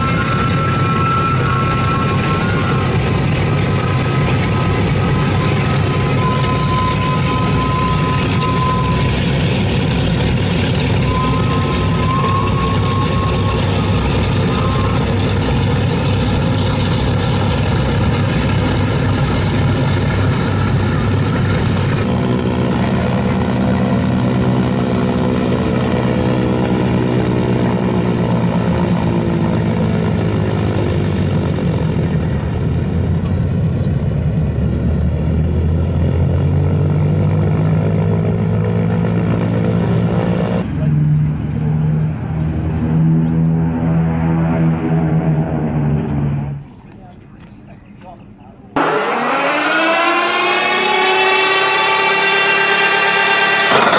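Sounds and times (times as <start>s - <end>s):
thin whistling tone: 0.0s - 9.4s, 10.8s - 15.3s
propeller aircraft engines droning: 0.0s - 53.9s.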